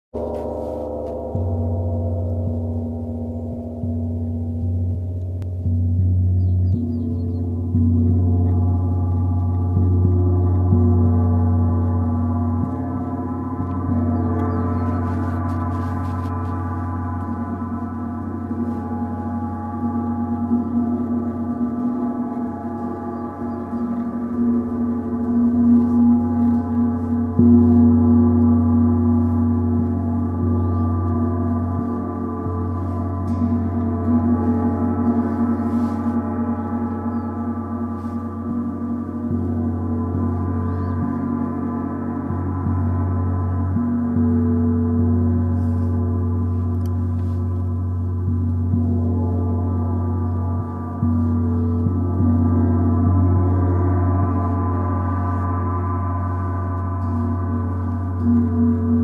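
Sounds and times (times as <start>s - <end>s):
deep low hum: 0.1s - 59.0s
gongs ringing: 0.2s - 59.0s.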